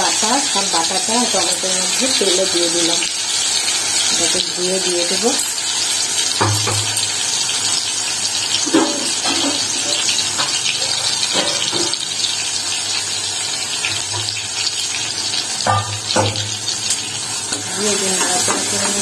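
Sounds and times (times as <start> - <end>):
water running from tap: 0.0 - 19.0.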